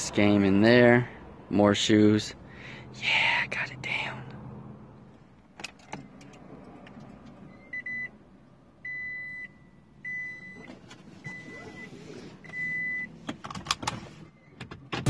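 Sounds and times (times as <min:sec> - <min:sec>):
car warning beeps: 0:07.4 - 0:08.2, 0:08.8 - 0:13.3, 0:14.2 - 0:14.8.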